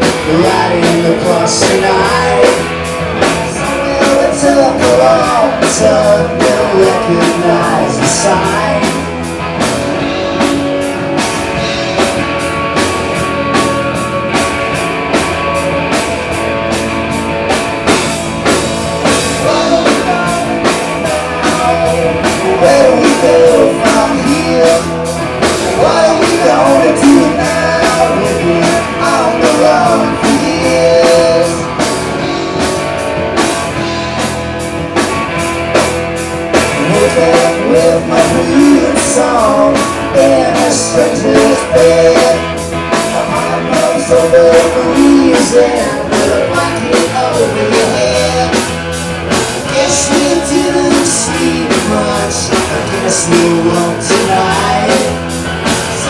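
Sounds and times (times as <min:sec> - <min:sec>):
person singing: 0:00.0 - 0:09.3, 0:19.0 - 0:32.3, 0:36.6 - 0:48.8, 0:49.6 - 0:56.0
bass guitar: 0:00.0 - 0:56.0
drum kit beat: 0:00.0 - 0:56.0
electric guitar: 0:00.0 - 0:56.0.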